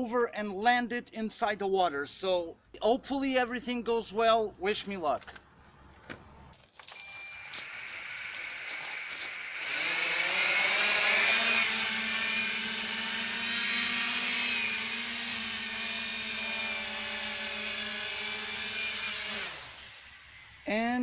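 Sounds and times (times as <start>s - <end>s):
drone propellers whining: 7.0s - 14.0s.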